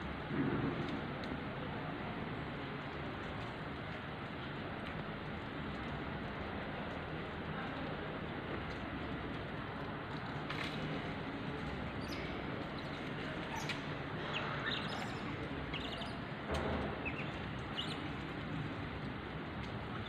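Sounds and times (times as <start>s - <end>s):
high bird chirps: 14.3s - 16.2s.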